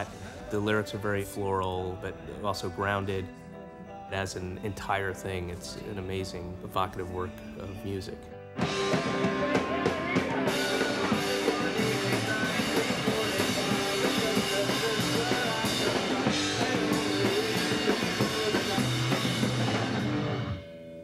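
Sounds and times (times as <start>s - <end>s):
rock band playing: 7.8s - 21.0s.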